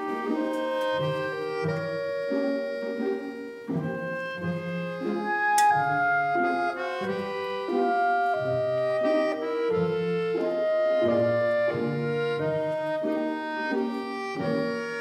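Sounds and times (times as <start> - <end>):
instrumental music with bass line: 0.0 - 15.0
sharp click: 5.6 - 5.8.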